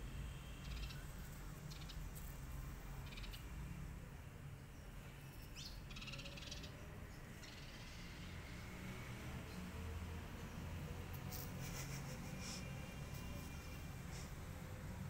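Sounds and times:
birds chirping: 0.6s - 2.2s, 2.9s - 3.6s, 4.5s - 8.7s.

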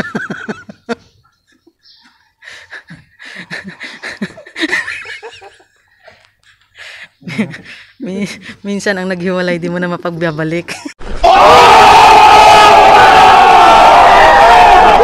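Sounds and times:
people laughing: 0.0s - 1.8s, 2.4s - 8.6s.

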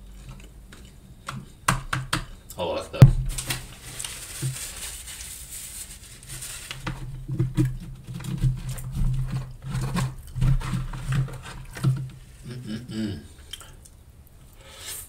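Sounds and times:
plastic fork scraping cardboard box: 7.7s - 11.9s.

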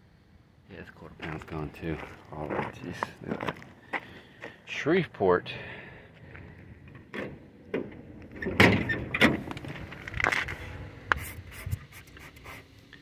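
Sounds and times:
car door clunks and rattles: 7.0s - 9.9s.

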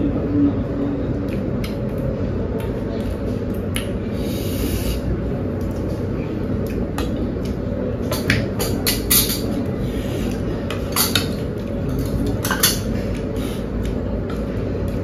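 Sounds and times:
low background rumble: 0.0s - 15.0s
small clicks of eating: 1.1s - 4.0s, 10.2s - 15.0s.

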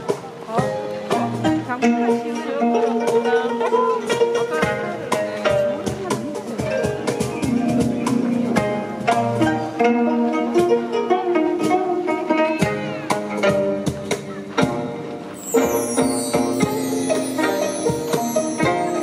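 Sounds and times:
zithers plucking a melody: 0.0s - 19.0s.

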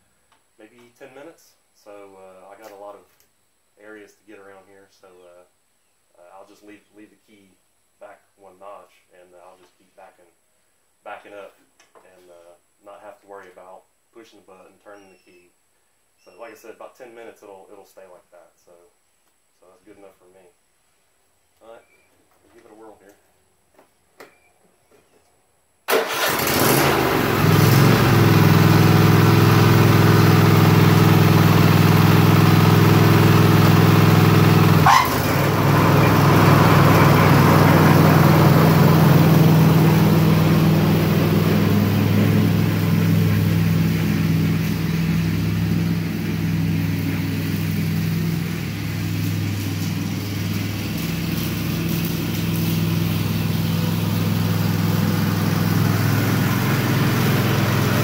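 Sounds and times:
mower engine starting and running: 25.9s - 58.0s.

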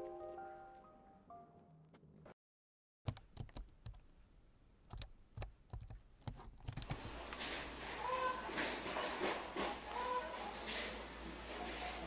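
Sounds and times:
low background noise: 3.2s - 12.0s.

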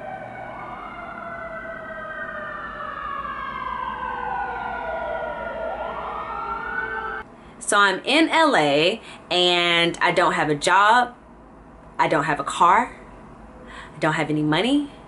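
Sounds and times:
emergency sirens wailing: 0.0s - 7.2s.

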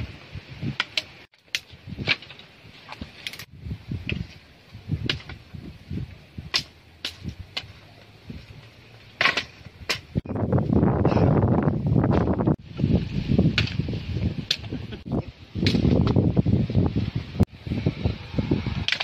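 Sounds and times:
wood clattering: 0.7s - 5.6s, 6.5s - 10.2s
knife chopping branches: 9.1s - 10.2s.

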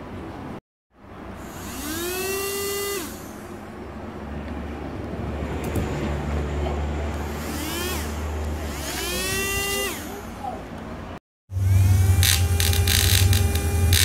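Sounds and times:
steady low hum: 1.0s - 14.0s
toy motor whine: 1.4s - 3.6s, 7.2s - 10.2s, 11.6s - 14.0s.

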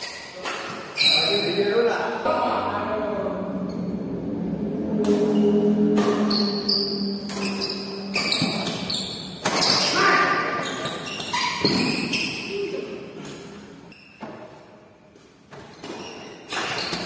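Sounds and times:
shoes squeaking on tiled floor: 0.0s - 1.7s, 6.3s - 12.9s, 13.9s - 14.6s, 15.5s - 17.0s
racket striking shuttlecock: 7.2s - 10.0s.

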